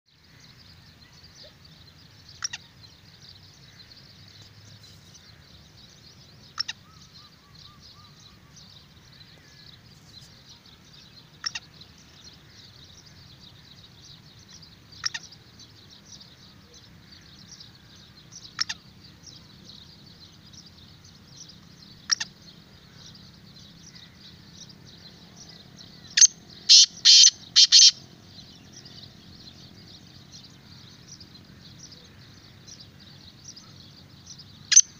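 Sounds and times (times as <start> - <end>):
bird calling harsh notes: 26.2 - 28.0.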